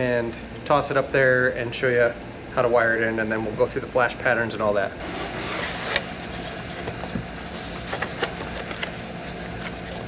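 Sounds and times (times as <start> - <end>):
cardboard scraping: 5.0 - 10.0
cardboard and paper rustling: 5.1 - 10.0.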